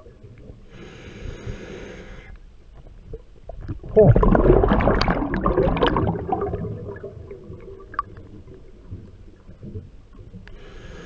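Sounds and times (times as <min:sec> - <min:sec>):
low underwater rumble: 0:02.5 - 0:10.6
exhaled bubbles underwater: 0:03.1 - 0:10.5
faint clicks: 0:10.1 - 0:10.6.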